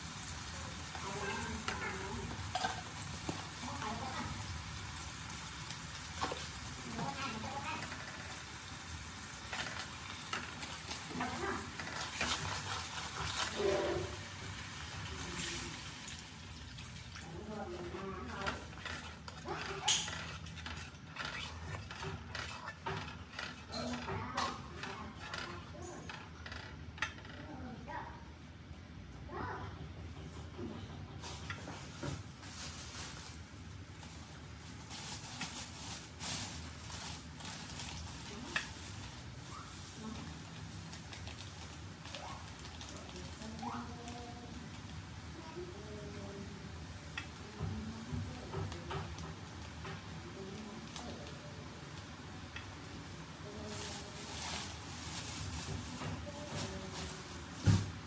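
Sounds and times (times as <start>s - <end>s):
sauce sizzling in a frying pan: 0.0s - 18.0s
wooden spatula scraping a pan: 9.3s - 14.6s, 17.6s - 27.2s.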